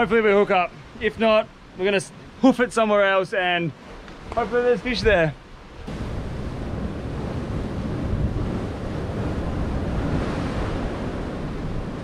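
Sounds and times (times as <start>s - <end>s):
surf washing against rocks: 0.0s - 12.0s
wind gusting on microphone: 3.8s - 12.0s.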